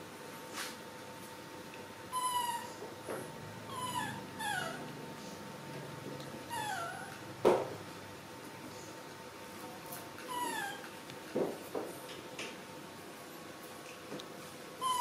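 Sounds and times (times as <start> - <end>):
young macaque calling: 3.7 - 4.8.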